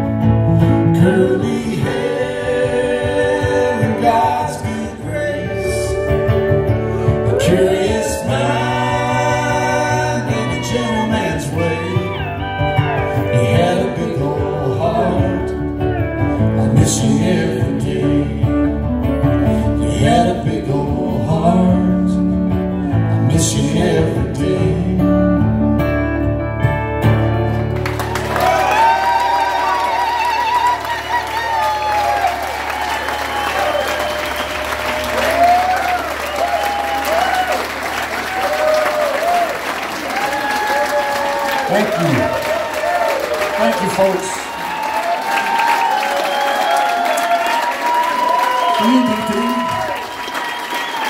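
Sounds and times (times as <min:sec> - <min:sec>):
person singing: 0:00.8 - 0:18.8, 0:19.6 - 0:25.4.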